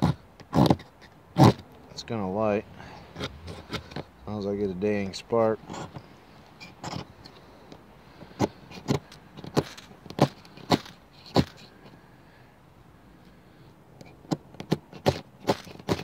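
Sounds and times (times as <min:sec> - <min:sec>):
ferro rod scrapes: 0:02.9 - 0:04.1, 0:05.6 - 0:07.4.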